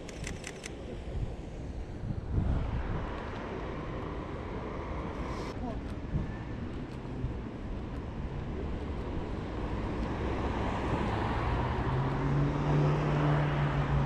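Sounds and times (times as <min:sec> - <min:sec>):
vehicle passing: 0:08.6 - 0:14.0.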